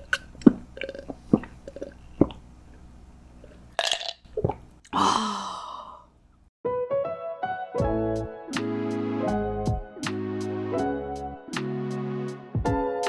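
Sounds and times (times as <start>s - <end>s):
breathy sigh: 4.9s - 6.1s.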